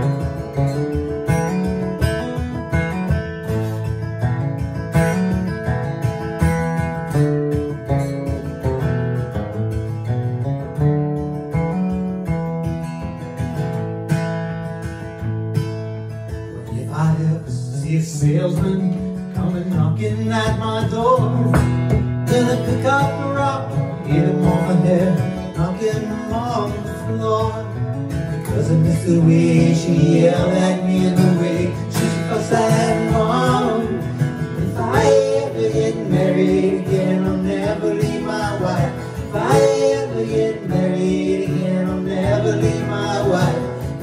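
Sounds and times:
acoustic guitar: 0:00.0 - 0:44.0
man singing: 0:16.6 - 0:44.0.

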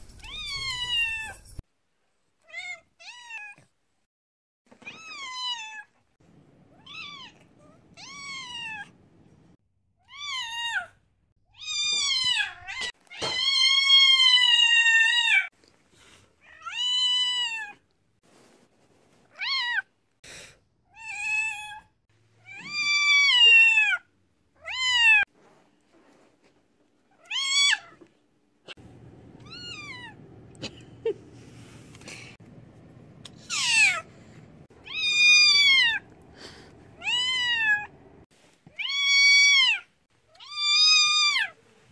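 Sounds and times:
cat meowing loudly: 0:11.6 - 0:15.5, 0:34.8 - 0:36.0, 0:37.0 - 0:37.9, 0:38.7 - 0:41.6.

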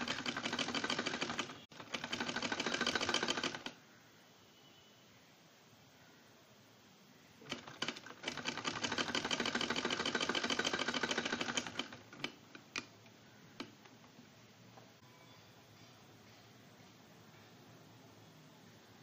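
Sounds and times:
sewing machine clicking: 0:00.0 - 0:03.8, 0:07.4 - 0:14.0.

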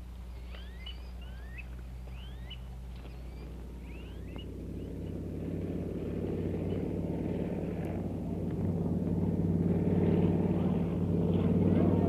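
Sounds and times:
vehicle engine running: 0:00.0 - 0:12.0.

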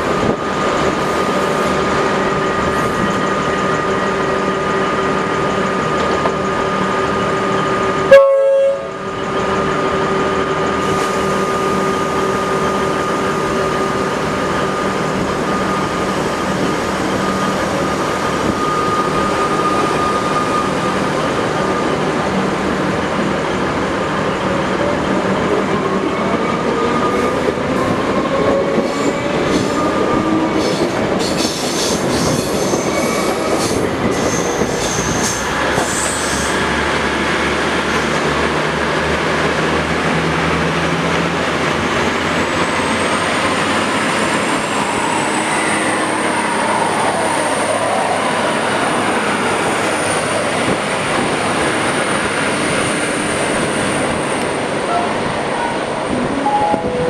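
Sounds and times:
electric train passing: 0:00.0 - 0:57.0
train horn blast: 0:08.1 - 0:09.1, 0:56.2 - 0:57.0
wheel squeals and rail clicks: 0:28.3 - 0:36.7.

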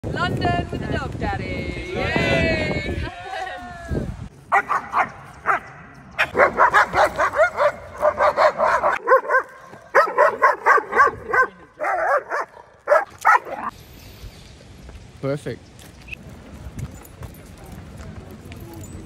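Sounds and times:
dog barking: 0:04.5 - 0:13.7.

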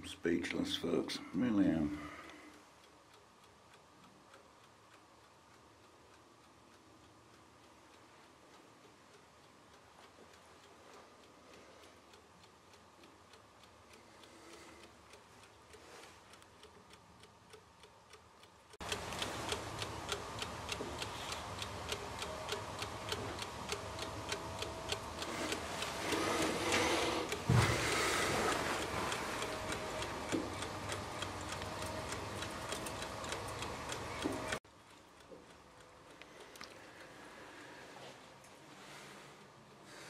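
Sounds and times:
clockwork timer ticking: 0:00.0 - 0:39.1
low thump: 0:27.4 - 0:27.9.

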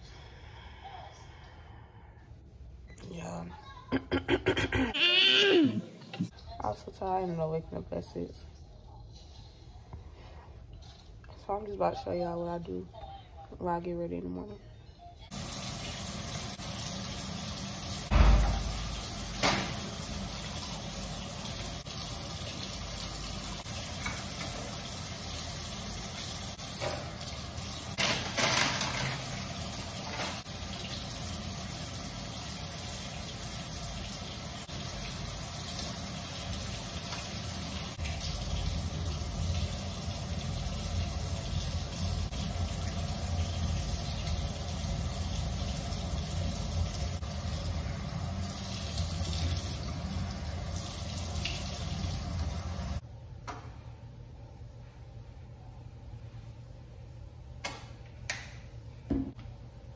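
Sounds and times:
sink tap running: 0:15.3 - 0:53.0.

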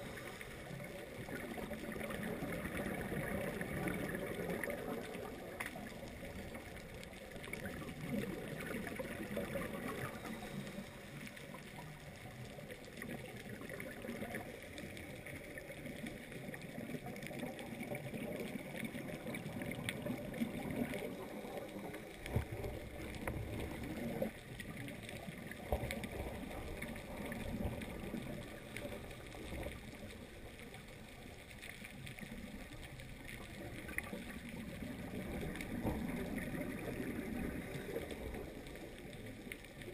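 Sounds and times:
underwater watery hiss: 0:00.0 - 0:05.6, 0:08.3 - 0:12.0
water gurgling: 0:00.0 - 0:39.9.

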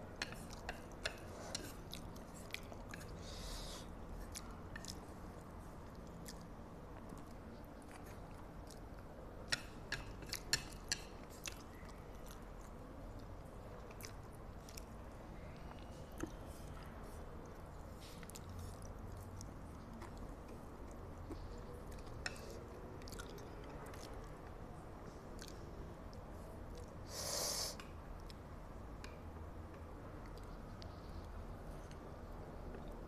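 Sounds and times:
chewing noodles: 0:17.4 - 0:24.6.

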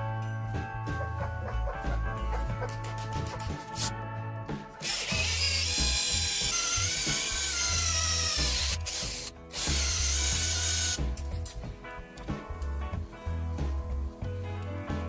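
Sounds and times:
background music: 0:00.0 - 0:15.0
electric drill boring into metal: 0:04.8 - 0:11.0.

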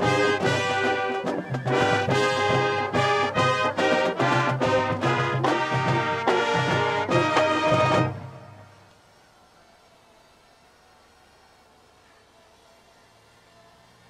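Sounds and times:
marching band brass playing: 0:00.0 - 0:08.9.

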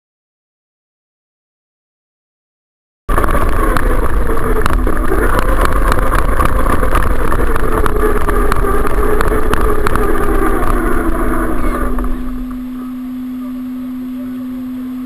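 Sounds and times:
small clicks: 0:03.1 - 0:12.6
engine rumble: 0:03.1 - 0:15.0.

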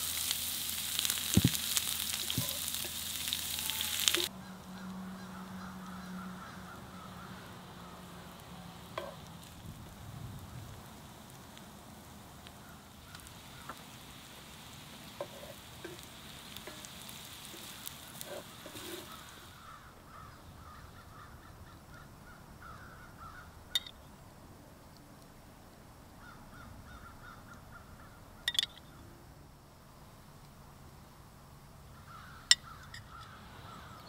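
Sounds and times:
onions sizzling in a skillet: 0:00.0 - 0:04.3, 0:05.4 - 0:19.9
bird calling: 0:01.0 - 0:08.4, 0:15.2 - 0:24.0, 0:26.2 - 0:29.1, 0:31.9 - 0:34.0.

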